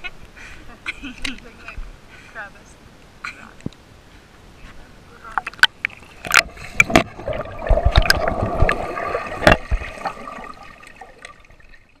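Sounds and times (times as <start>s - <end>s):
water gurgling underwater: 5.4s - 12.0s.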